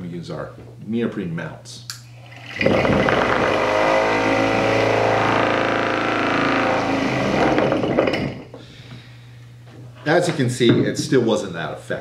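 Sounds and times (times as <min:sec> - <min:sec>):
electric fan running loud: 0:01.9 - 0:10.6.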